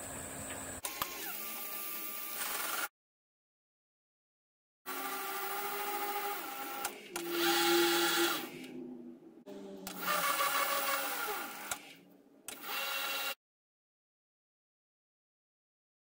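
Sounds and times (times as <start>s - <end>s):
hissing tool cutting metal: 5.5s - 8.8s.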